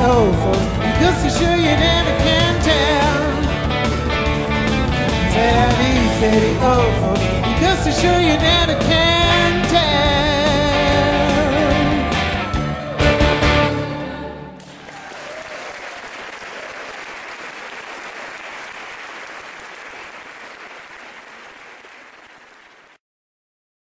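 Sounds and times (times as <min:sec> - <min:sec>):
audience applause: 0:14.6 - 0:23.0.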